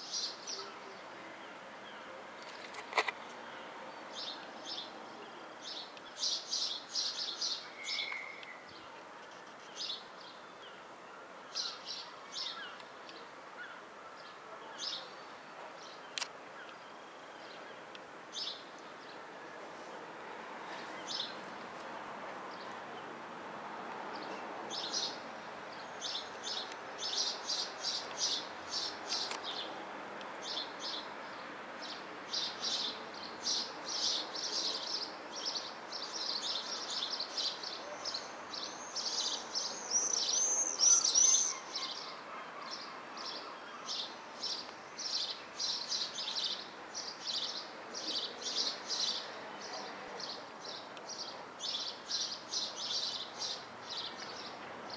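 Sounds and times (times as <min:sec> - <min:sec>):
small birds chirping: 0:00.0 - 0:10.9, 0:24.1 - 0:54.6
faint background noise: 0:00.0 - 0:54.9.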